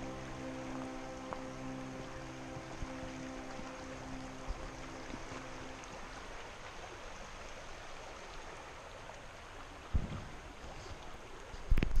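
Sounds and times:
creek water rushing over stones: 0.0 - 12.0
low thumps and rumble: 9.9 - 10.6.

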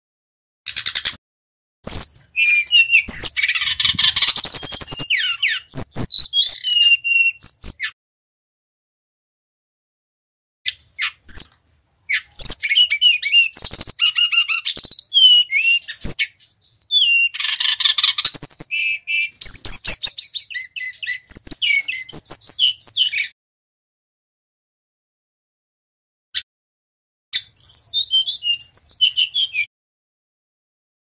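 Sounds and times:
bird singing whistles and trills: 1.8 - 8.0, 10.7 - 23.4, 27.4 - 29.7
harsh rasping bird phrase: 1.9 - 5.8.

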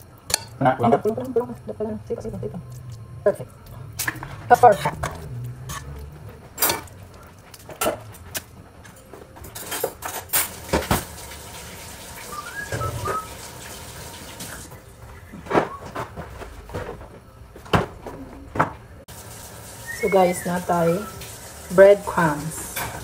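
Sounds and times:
dishes knocking and clinking: 7.6 - 8.2, 8.8 - 11.1
high wavering whistle: 12.2 - 13.4, 19.8 - 21.3.

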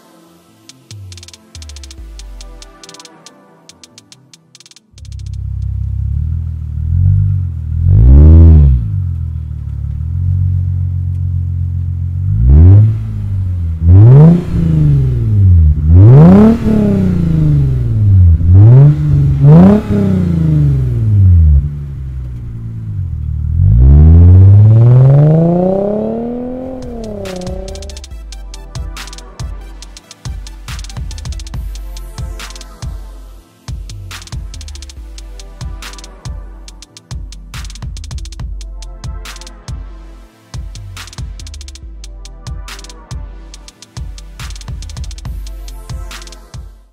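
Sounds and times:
car engine idling and revving: 5.0 - 46.9.

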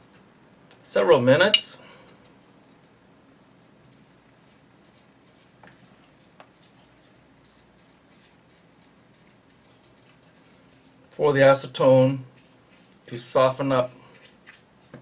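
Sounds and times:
scratchy paintbrush strokes: 3.5 - 15.0.

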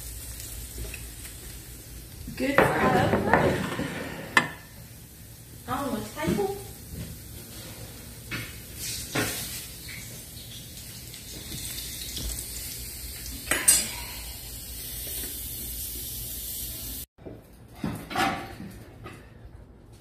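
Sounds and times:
oil sizzling in a skillet: 0.0 - 17.1
utensils and dishes clinking: 13.4 - 14.2.

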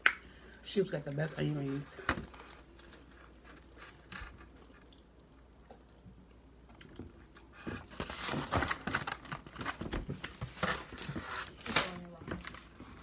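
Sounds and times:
small crackles and clicks: 2.3 - 13.0
chewing crunchy food: 2.4 - 7.9.

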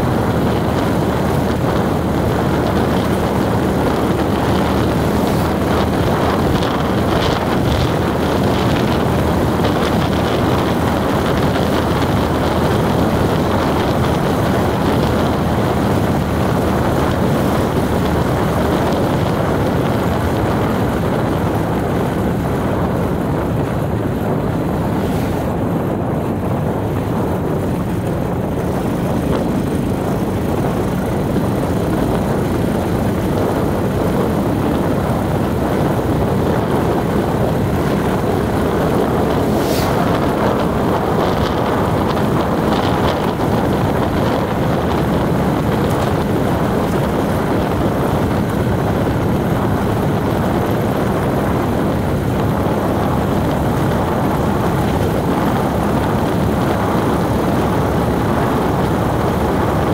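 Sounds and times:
road noise: 0.0 - 59.9
vehicle engine hum: 0.0 - 59.9.

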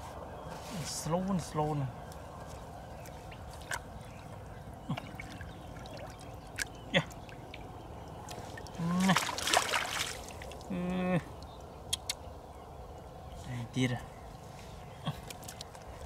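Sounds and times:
hands splashing in muddy water: 8.1 - 10.7.

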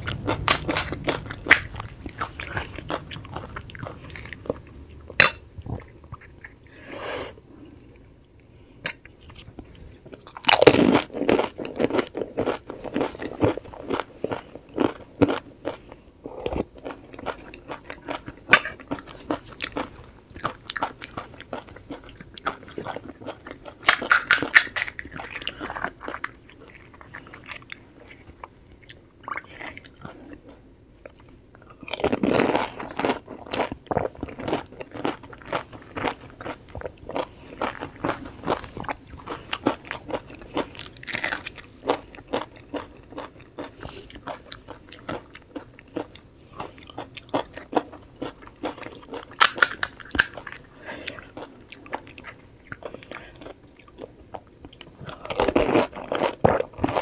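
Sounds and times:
crisp shells crunching: 0.0 - 4.7, 22.4 - 27.9, 34.3 - 44.3, 47.2 - 53.0
chewing: 7.6 - 57.0.

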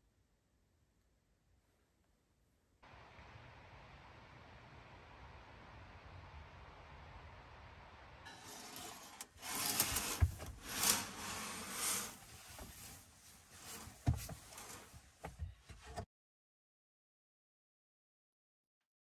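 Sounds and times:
rustling and handling noises: 8.3 - 16.0
dull thumps: 13.9 - 16.0.

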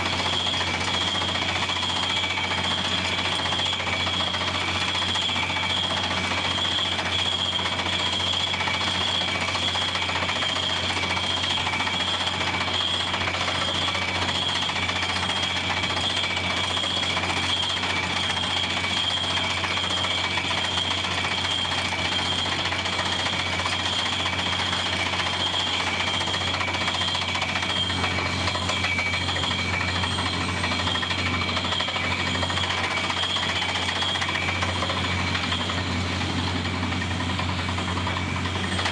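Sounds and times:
drilling rig engine rattling: 0.0 - 38.9
high machinery whine: 0.0 - 38.9.

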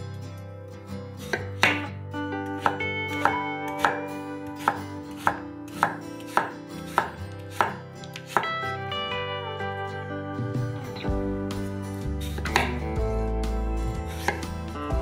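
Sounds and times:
knife chopping on wooden board: 1.3 - 1.9, 2.6 - 4.0, 4.6 - 8.5, 12.2 - 12.8, 14.1 - 14.5.

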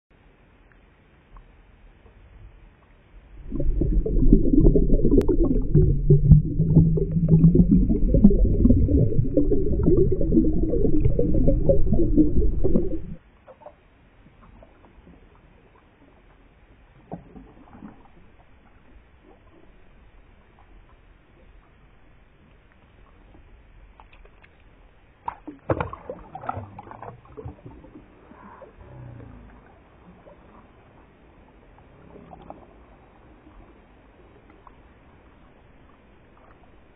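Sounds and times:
underwater churning and bubbling: 3.2 - 13.2.

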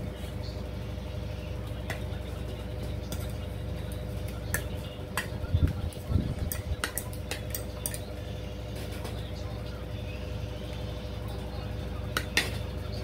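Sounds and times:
steady background hum: 0.0 - 13.0
cutlery clinking on a plate: 6.4 - 8.1.

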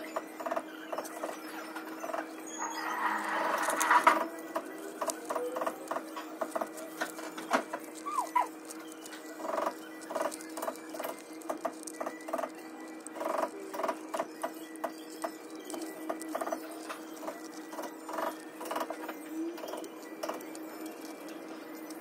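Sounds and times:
wire rustling and scraping: 1.0 - 22.0.

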